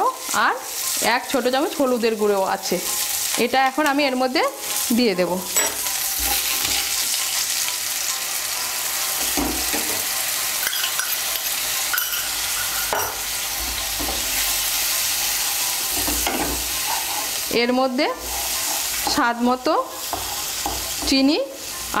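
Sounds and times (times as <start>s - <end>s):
spice paste sizzling in oil: 0.0s - 22.0s
spatula scraping pan: 4.7s - 7.7s, 8.7s - 22.0s.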